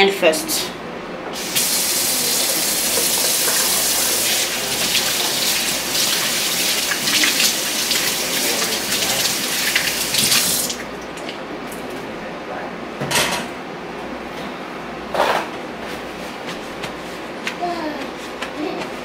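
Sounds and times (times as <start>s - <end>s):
tap water running: 1.3s - 11.4s
hands washing under water: 1.4s - 11.4s.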